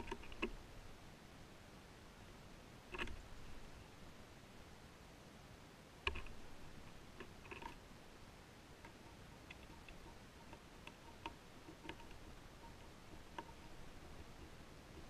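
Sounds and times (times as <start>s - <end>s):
birds pecking and tapping: 0.0s - 0.6s, 2.9s - 3.7s, 6.0s - 7.8s, 8.8s - 15.0s.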